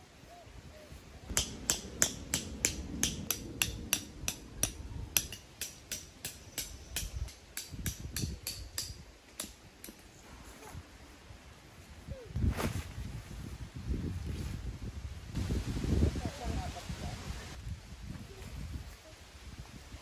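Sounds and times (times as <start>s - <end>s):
tent stakes being hammered: 1.3s - 10.1s.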